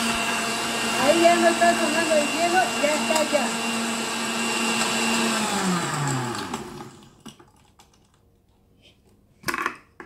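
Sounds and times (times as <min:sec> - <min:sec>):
blender motor spinning down: 0:00.0 - 0:07.2.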